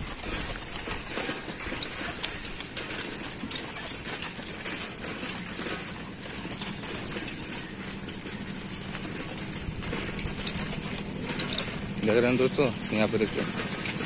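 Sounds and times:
engine humming: 0.0 - 14.0.

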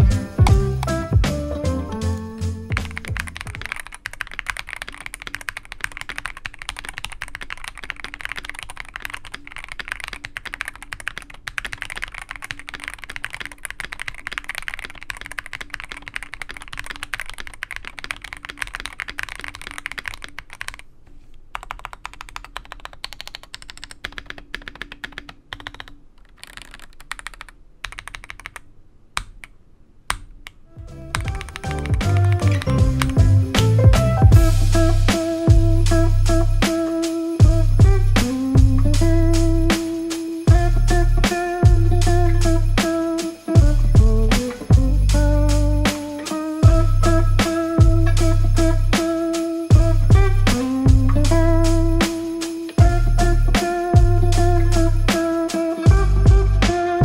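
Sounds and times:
mechanical keyboard typing: 2.0 - 20.9, 21.5 - 29.5, 30.1 - 33.8.

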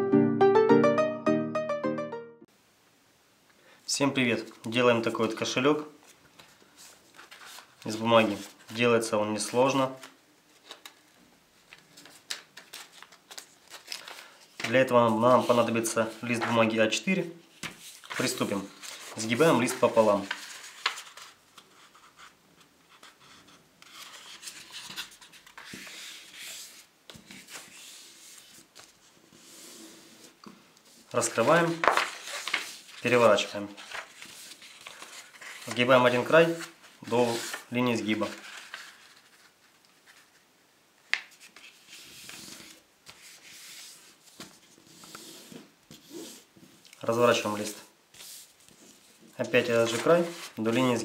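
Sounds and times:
paper rubbing and rustling: 6.0 - 9.6, 11.7 - 16.8, 17.5 - 40.5, 41.1 - 46.8, 47.6 - 51.0.

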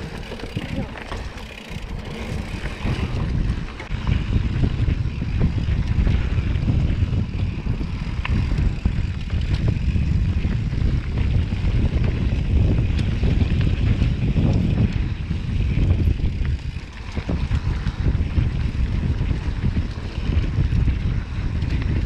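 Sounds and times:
bike clicks and rattles: 0.0 - 22.0
tyres rumbling on dirt: 0.0 - 22.0
wind buffeting the microphone: 0.0 - 22.0.

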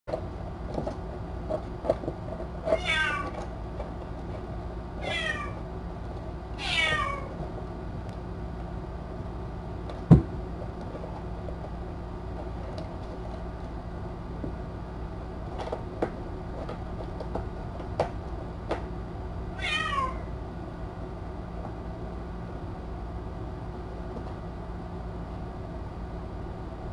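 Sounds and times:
kitten meowing: 2.8 - 3.3, 5.0 - 5.6, 6.6 - 7.3, 19.6 - 20.3.

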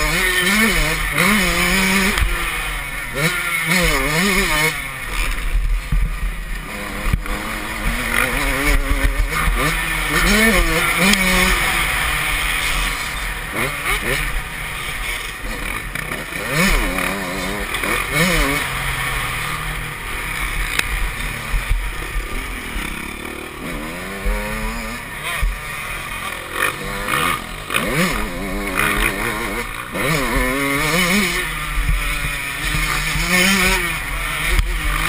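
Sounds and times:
motocross engine revving: 0.0 - 35.0.

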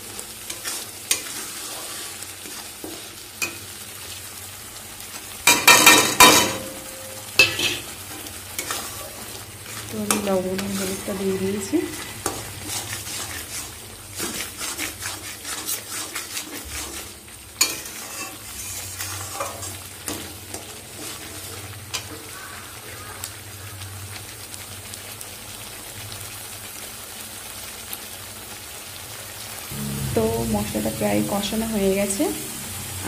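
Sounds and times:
paste sizzling in oil: 0.0 - 33.0
spatula scraping and tapping pan: 0.5 - 3.7, 7.4 - 22.2.

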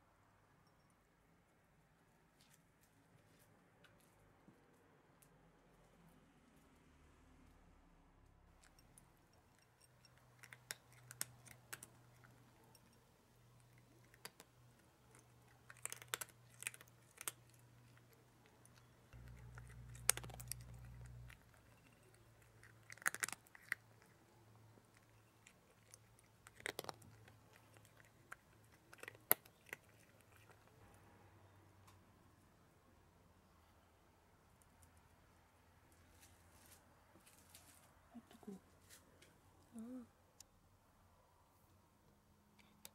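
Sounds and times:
cat crunching food: 8.5 - 31.0.

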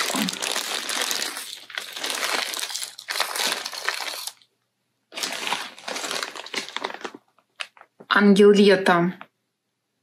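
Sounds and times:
plastic packaging crinkling: 0.0 - 4.5, 5.1 - 8.0.

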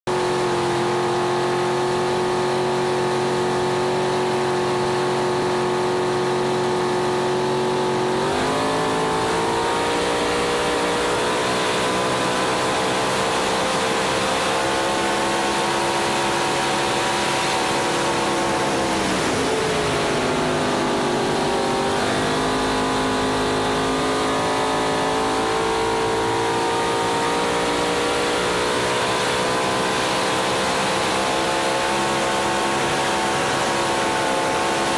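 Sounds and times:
boat engine running hard: 0.1 - 34.9
wind and water rushing: 12.9 - 21.5.

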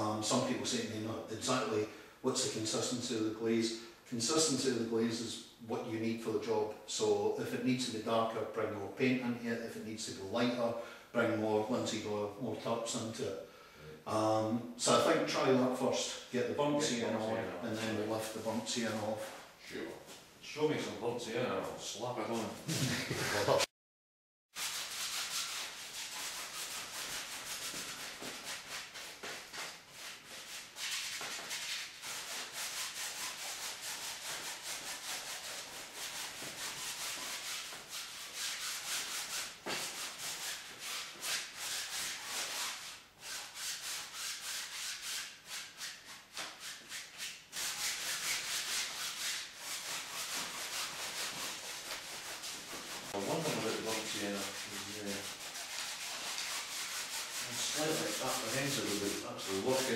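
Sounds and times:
paintbrush scrubbing canvas: 16.8 - 19.5, 24.6 - 59.9.

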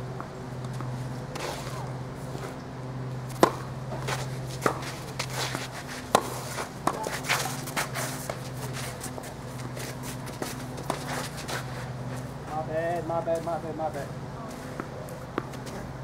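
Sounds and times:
footsteps and shoe scuffs on court: 0.6 - 2.6, 3.3 - 16.0
tennis ball struck by racket: 3.3 - 8.4.

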